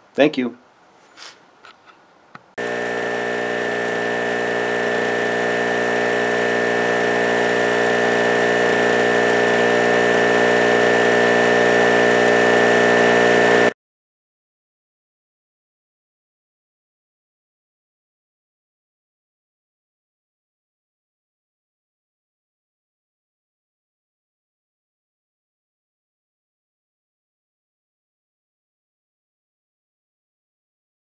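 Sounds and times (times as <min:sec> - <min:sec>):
generator engine running with whine: 0:02.6 - 0:13.7.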